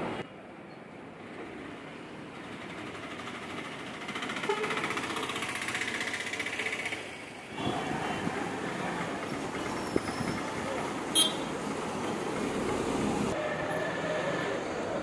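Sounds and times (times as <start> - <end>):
bus engines running: 0.0 - 15.0
street traffic: 0.0 - 15.0
fast rattling clatter: 2.8 - 7.3.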